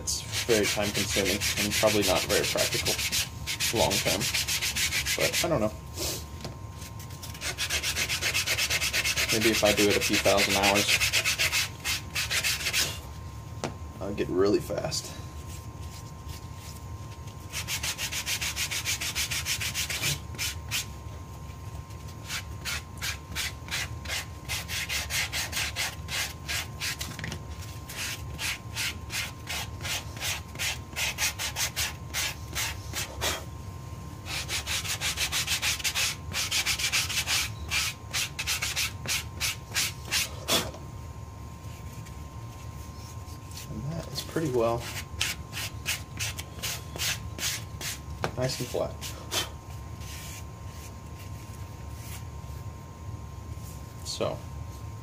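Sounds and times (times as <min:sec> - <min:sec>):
sandpaper rubbing on sole: 0:00.3 - 0:05.5, 0:06.9 - 0:13.0, 0:17.4 - 0:20.9, 0:22.0 - 0:27.1, 0:27.7 - 0:33.2, 0:34.3 - 0:40.3, 0:44.8 - 0:49.2, 0:50.0 - 0:51.4.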